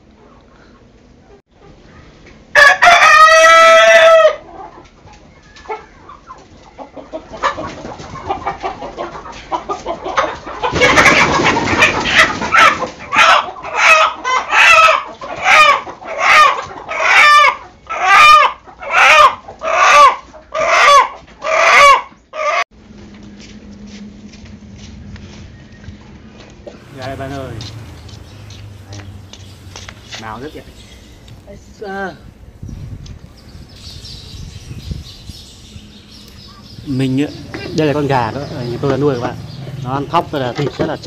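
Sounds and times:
rooster crowing: 2.6 - 4.5
wings flapping and scuffling: 7.4 - 13.2, 26.7 - 36.7.

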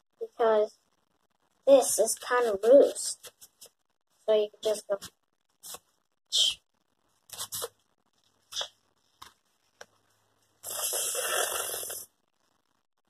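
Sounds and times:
rustling paper scrape: 7.3 - 7.8.

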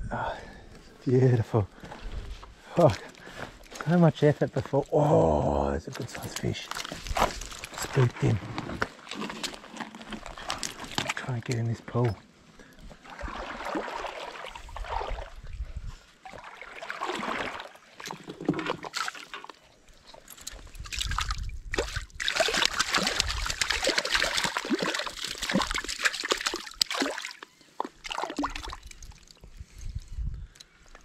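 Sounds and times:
river water splashing: 12.9 - 15.4, 16.2 - 19.6, 20.9 - 29.4.

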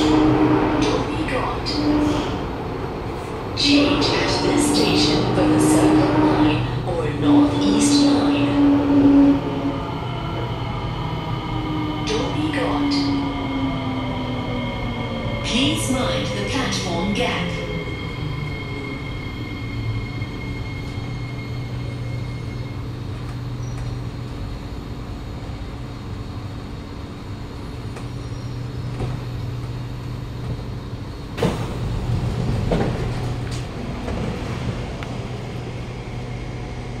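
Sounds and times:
train humming: 0.0 - 37.0
train doors opening clunk: 31.3 - 34.9.

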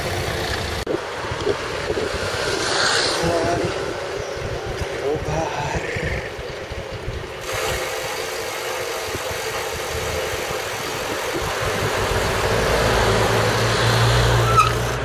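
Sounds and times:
approaching car hum: 10.1 - 15.0.

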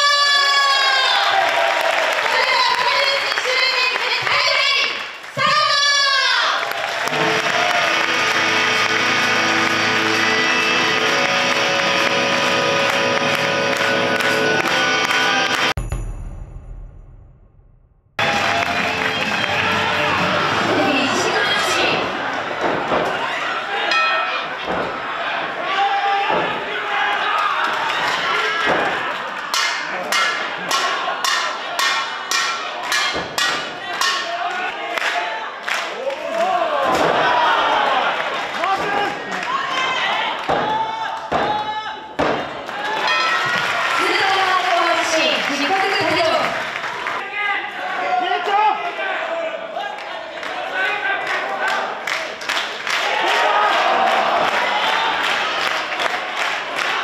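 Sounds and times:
ring bell struck with hammer: 15.8 - 17.1.

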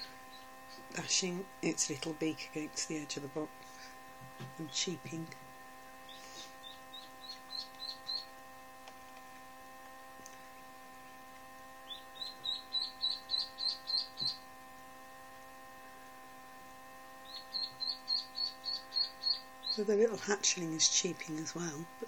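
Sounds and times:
steady hum: 0.0 - 22.0
duckling cheeping: 6.1 - 8.3, 11.9 - 14.4, 17.2 - 19.9.

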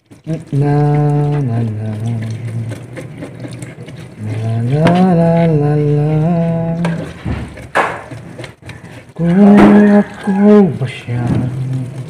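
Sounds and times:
person singing slow tune: 0.3 - 2.8, 4.2 - 7.2, 9.2 - 12.0.

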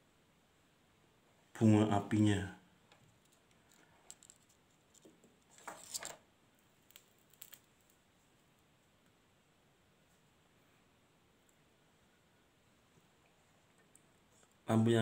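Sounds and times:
light clicks of small parts: 2.9 - 6.2, 6.8 - 8.0.

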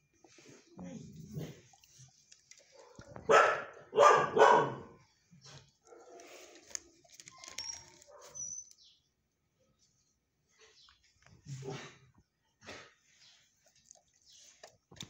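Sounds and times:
dog barking: 2.8 - 5.0, 5.8 - 6.4, 8.0 - 8.4.

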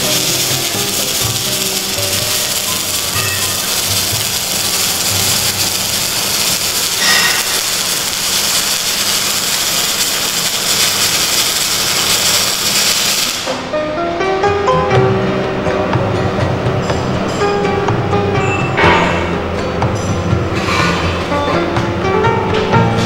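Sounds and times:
background music: 0.0 - 9.6, 13.4 - 23.0
welding arc hissing: 0.0 - 13.7.

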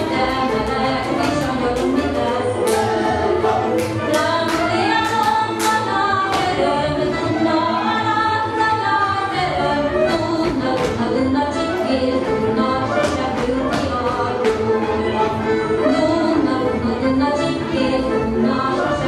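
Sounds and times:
dancers stamping and clapping: 0.0 - 6.7, 10.1 - 15.4
group singing folk song: 0.0 - 19.0.

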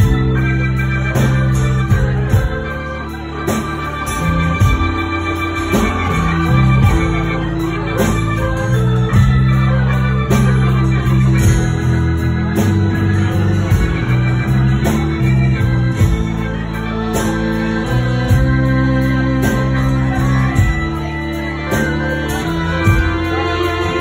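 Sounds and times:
bowed fiddle: 0.0 - 24.0
electric bass guitar: 0.0 - 24.0
steady beat: 0.0 - 24.0.

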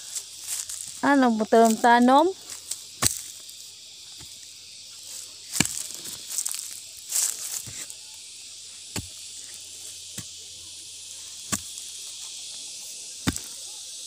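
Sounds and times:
high-pitched insects hissing: 0.0 - 14.0
hoe striking soil: 2.7 - 3.5, 5.5 - 7.9, 8.9 - 10.4, 11.4 - 11.9, 13.2 - 13.6.

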